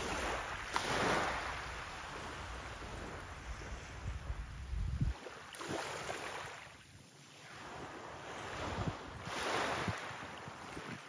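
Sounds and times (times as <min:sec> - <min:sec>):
waves washing on gravel beach: 0:00.0 - 0:06.6.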